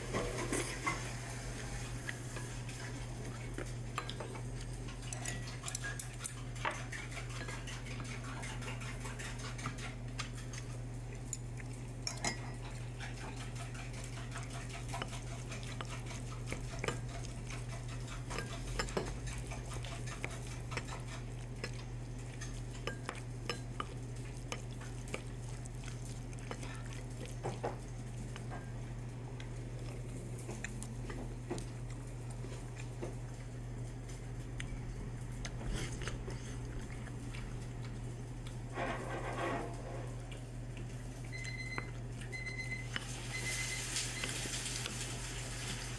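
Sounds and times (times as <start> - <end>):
steady low hum: 0.0 - 43.7
wooden spoon scraping bowl: 38.7 - 40.1.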